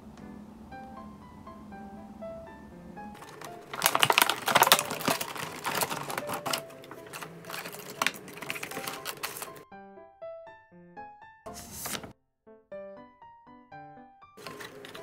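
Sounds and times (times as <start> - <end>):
plastic case clicking: 3.2 - 9.6
plastic wrap crinkling: 3.2 - 9.6, 14.4 - 15.0.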